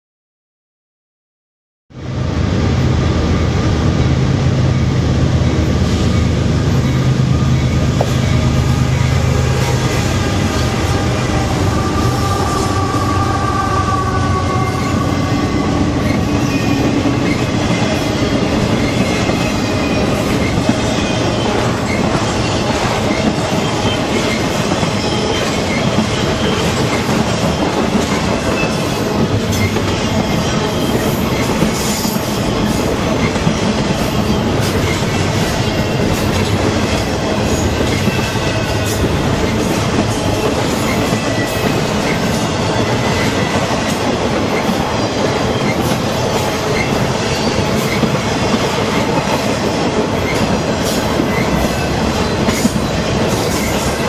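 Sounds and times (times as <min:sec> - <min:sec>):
diesel locomotives running: 0:02.0 - 0:54.0
train wheels squealing: 0:06.1 - 0:54.0
train wheel clatter: 0:13.9 - 0:54.0.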